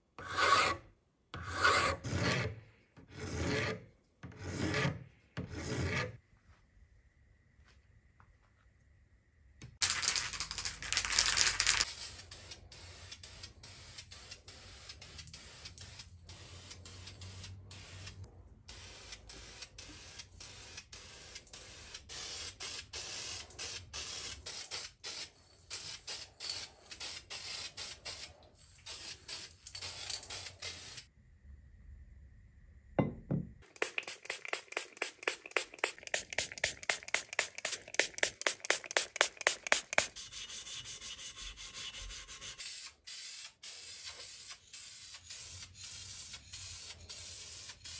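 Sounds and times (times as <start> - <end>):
spray paint can hissing: 9.8 - 31.1, 33.6 - 47.9.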